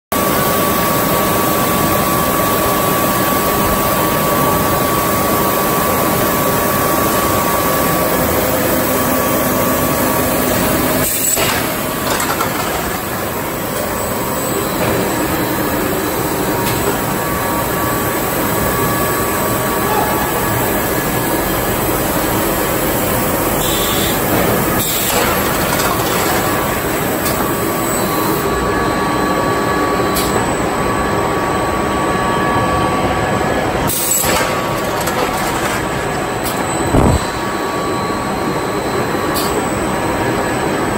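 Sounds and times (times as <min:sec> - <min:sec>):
machine whine: 0:00.2 - 0:40.9
industrial machinery din: 0:33.8 - 0:38.0.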